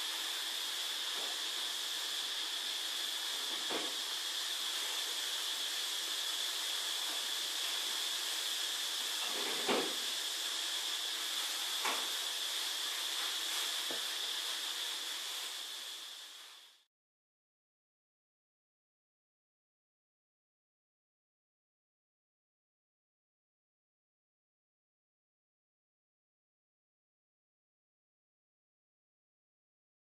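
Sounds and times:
background hiss: 0.0 - 16.9.

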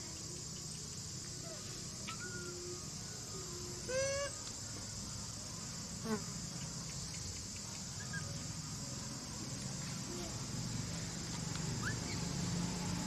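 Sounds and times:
high-pitched insect chorus: 0.0 - 13.0
baby monkey squeaky calls: 11.8 - 12.2.

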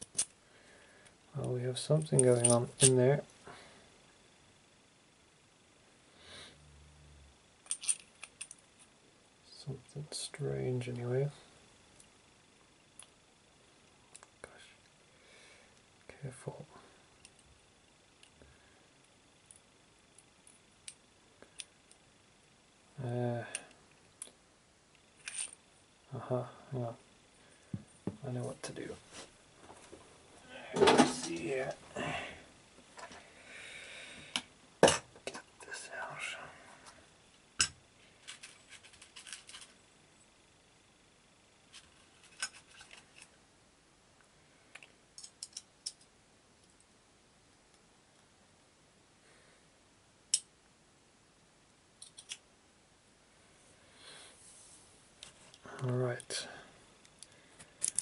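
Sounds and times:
metallic clicks of hand tools: 52.0 - 52.4.

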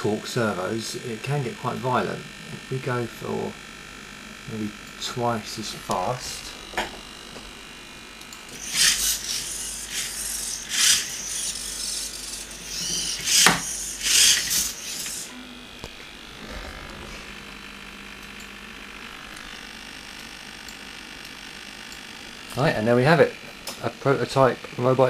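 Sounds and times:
faint steady hum: 0.0 - 25.0
servos whirring in bursts: 3.7 - 17.8.

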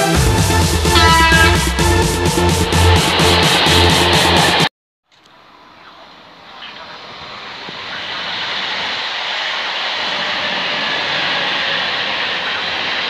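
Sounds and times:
electric train rushing past: 0.0 - 4.7, 6.2 - 13.0.

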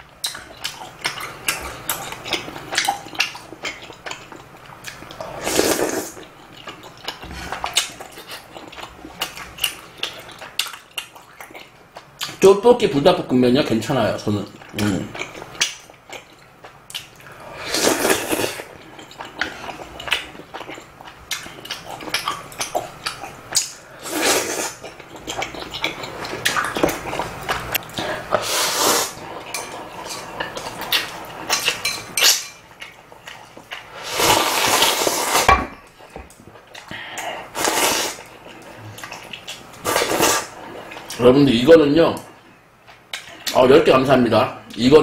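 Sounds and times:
person slurping noodles: 5.3 - 6.2, 17.5 - 18.7, 24.0 - 24.8, 28.0 - 29.2, 33.9 - 35.5, 37.4 - 38.2, 39.8 - 40.6.

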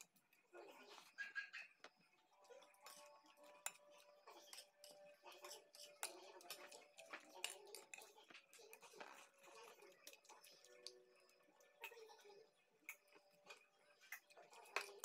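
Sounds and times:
chewing: 2.2 - 15.0
cutlery clicking on a plate: 2.9 - 9.2.

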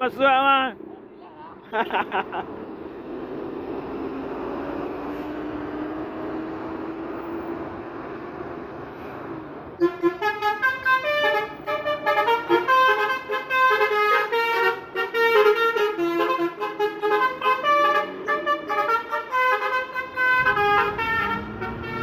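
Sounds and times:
bus musical horn tune: 9.8 - 22.0.

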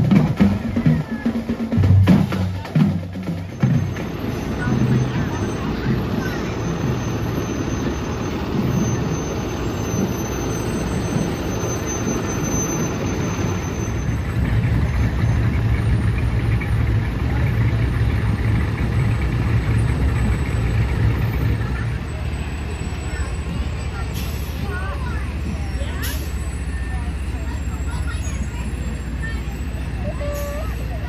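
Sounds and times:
fire truck engines rumbling: 0.0 - 31.0.

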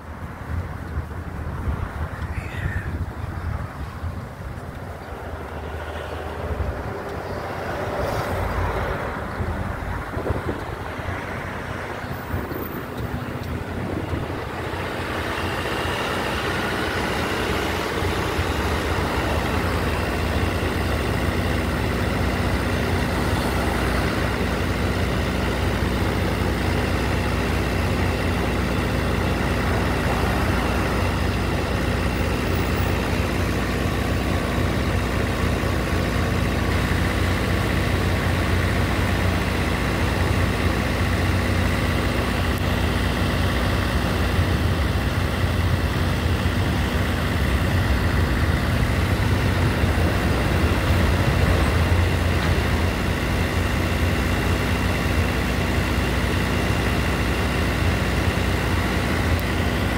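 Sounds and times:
truck motor droning: 0.0 - 59.9.

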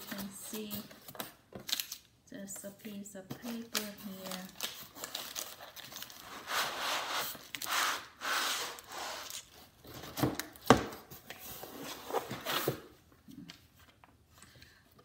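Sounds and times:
cardboard sliding and scraping: 6.3 - 9.3.

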